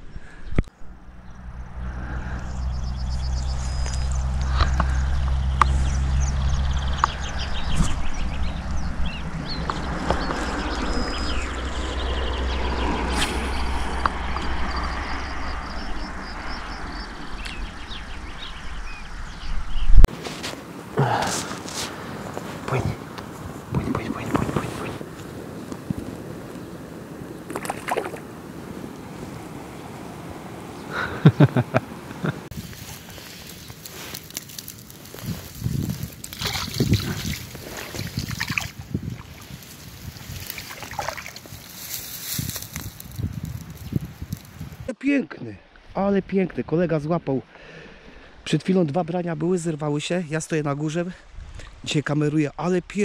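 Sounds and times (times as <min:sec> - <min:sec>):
small birds chirping: 0:00.0 - 0:20.0, 0:21.0 - 0:44.9
wind buffeting microphone: 0:00.0 - 0:33.9, 0:34.7 - 0:44.9, 0:51.2 - 0:51.9
low outdoor rumble: 0:00.7 - 0:31.0
river water running: 0:00.7 - 0:42.4.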